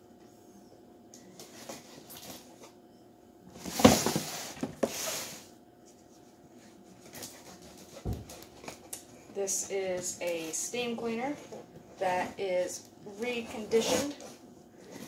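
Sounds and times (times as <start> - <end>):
knife scraping cardboard: 13.6 - 14.3.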